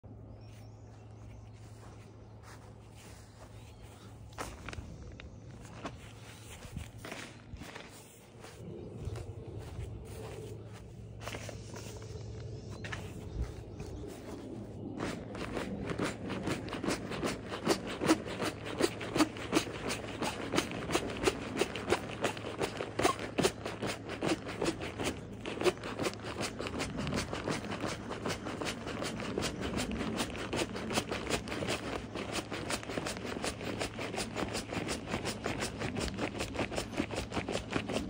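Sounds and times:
foot pump being stamped on: 15.0 - 38.0.

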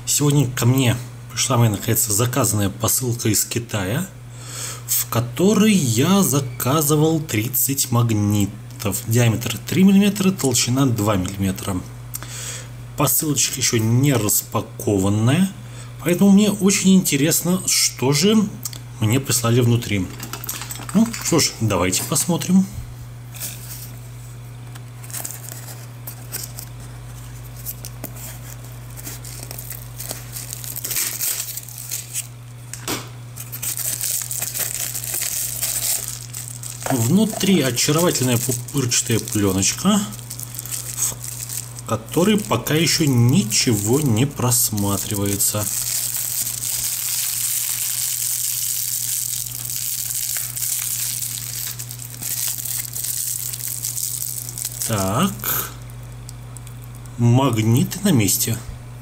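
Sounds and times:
steady low hum: 0.0 - 59.0
bubble wrap crinkling: 24.7 - 57.2.

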